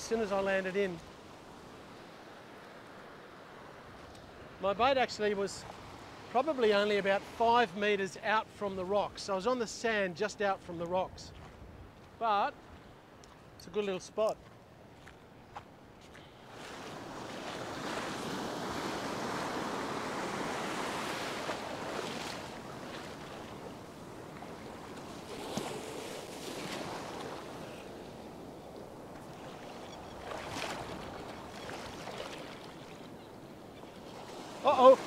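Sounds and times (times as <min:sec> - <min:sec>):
surf breaking in shallows: 0:16.5 - 0:35.0.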